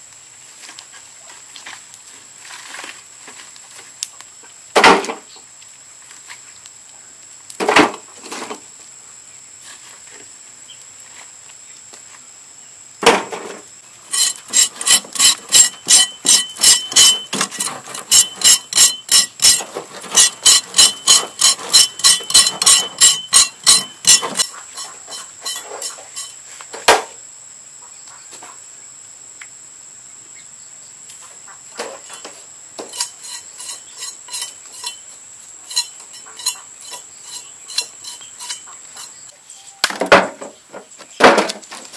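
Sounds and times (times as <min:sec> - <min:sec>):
knife scraping skin: 0:14.1 - 0:26.4, 0:32.8 - 0:35.0, 0:35.7 - 0:39.2.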